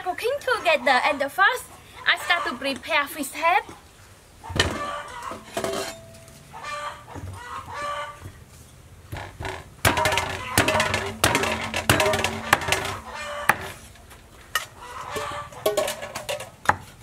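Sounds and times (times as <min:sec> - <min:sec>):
poultry calling: 0:04.4 - 0:05.5, 0:06.5 - 0:08.3, 0:10.2 - 0:13.9, 0:14.7 - 0:15.7
cleaver chopping on wooden board: 0:09.9 - 0:13.8.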